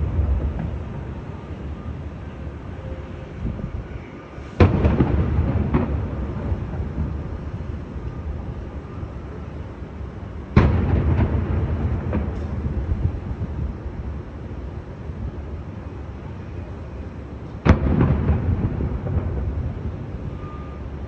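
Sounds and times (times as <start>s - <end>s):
fireworks booming: 0.0s - 1.5s, 4.4s - 8.0s, 10.5s - 14.1s, 17.6s - 21.0s.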